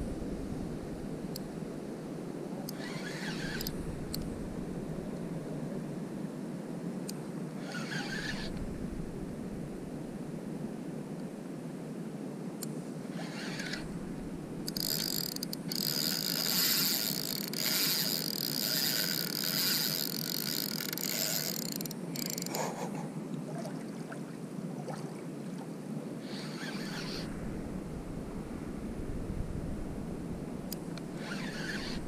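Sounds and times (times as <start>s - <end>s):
fishing reel whirring: 2.7s - 4.2s, 7.6s - 8.6s, 13.2s - 13.9s, 14.6s - 22.7s, 26.2s - 27.3s, 30.7s - 32.0s.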